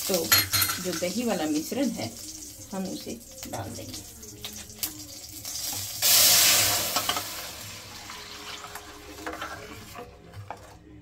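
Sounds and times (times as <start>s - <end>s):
batter sizzling in hot pan: 0.0s - 10.0s
spoon stirring in pan: 6.8s - 11.0s.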